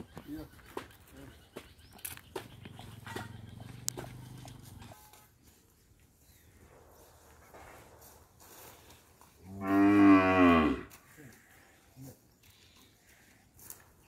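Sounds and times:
cow mooing: 0:09.5 - 0:10.9.

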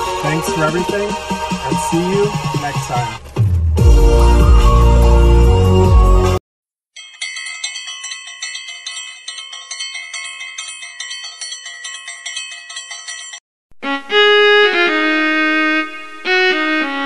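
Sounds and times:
bell-like chimes ringing: 0:07.0 - 0:13.4.

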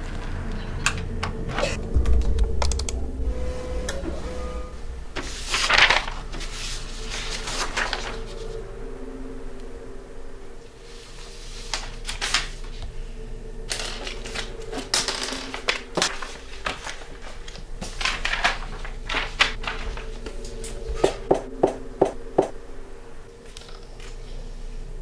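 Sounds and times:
faint steady hum: 0:00.0 - 0:25.0
paper rustling: 0:05.2 - 0:08.6, 0:10.9 - 0:12.9, 0:13.7 - 0:21.2.

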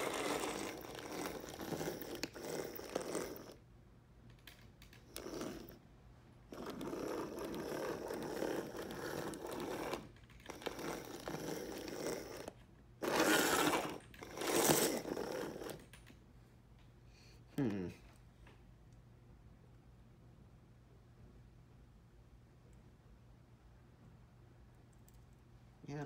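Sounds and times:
model locomotive whirring and rattling: 0:00.0 - 0:03.6, 0:05.0 - 0:05.8, 0:06.5 - 0:15.9.

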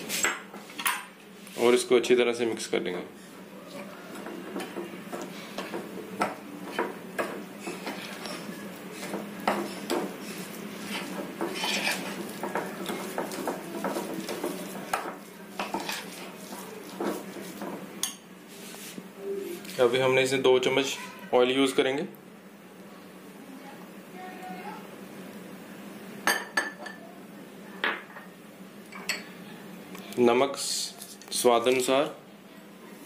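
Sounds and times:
spoon stirring thick batter: 0:03.7 - 0:18.2.

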